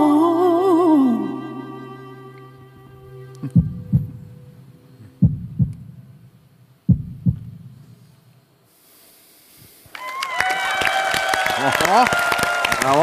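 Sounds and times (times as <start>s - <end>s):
backing music held note: 0.0s - 6.0s
heartbeat thumps: 3.4s - 4.5s, 5.1s - 7.9s.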